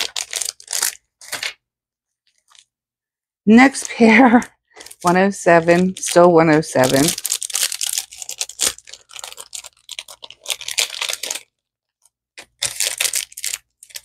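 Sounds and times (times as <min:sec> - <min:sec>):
packaging crinkling and tearing: 0:00.0 - 0:01.6, 0:04.7 - 0:14.0.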